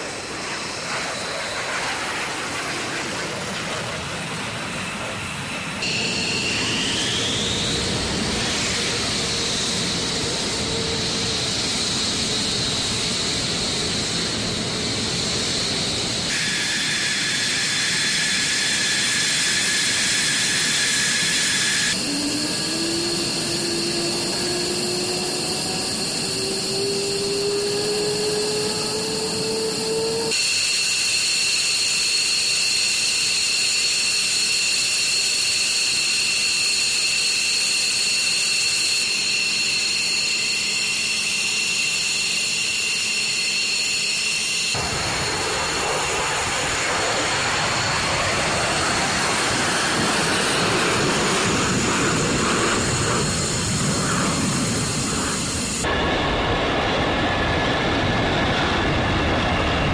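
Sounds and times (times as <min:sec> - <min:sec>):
jet noise rush: 0:00.0 - 0:30.5, 0:36.0 - 0:59.9
jet engine whine: 0:00.0 - 0:59.9.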